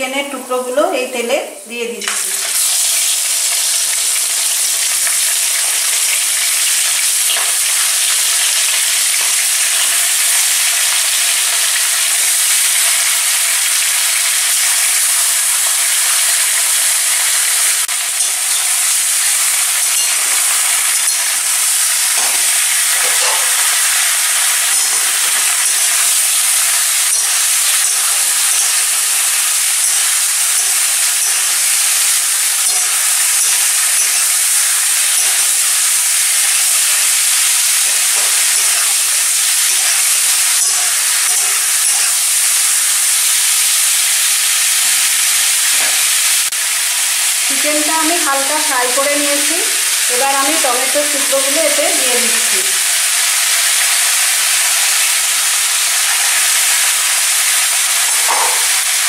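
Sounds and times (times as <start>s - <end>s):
chicken sizzling in oil: 2.0s - 59.0s.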